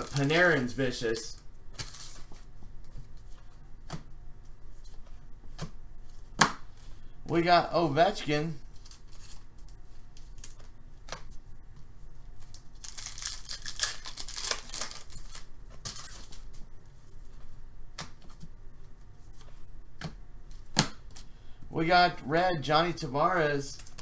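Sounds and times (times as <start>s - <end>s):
foil wrapper tearing and crinkling: 0.0s - 2.4s, 12.4s - 16.5s.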